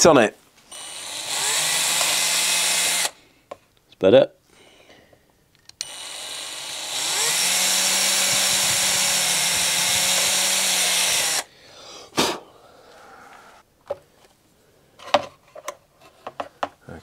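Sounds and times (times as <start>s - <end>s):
electric drill boring wood: 0.7s - 3.2s, 5.8s - 11.5s.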